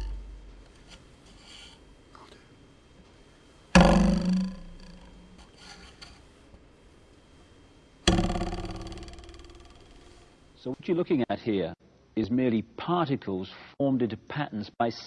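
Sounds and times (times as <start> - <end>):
metal ruler twanging: 0.0 - 0.6, 3.8 - 6.2, 8.0 - 10.3.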